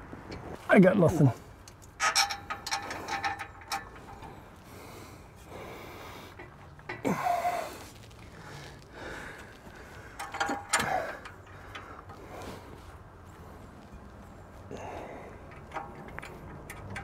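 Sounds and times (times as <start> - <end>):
man breathing hard: 4.0 - 13.8, 14.6 - 16.4.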